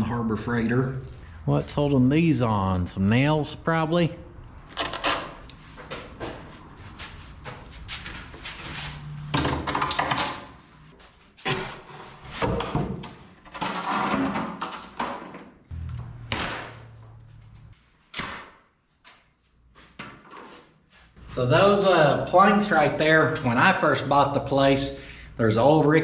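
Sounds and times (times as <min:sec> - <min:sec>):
background music: 0:15.7 - 0:17.7.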